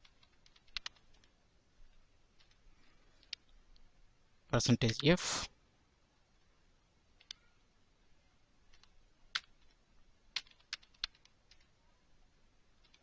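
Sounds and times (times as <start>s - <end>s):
typing on computer keyboard: 0.0s - 1.3s, 8.7s - 11.7s.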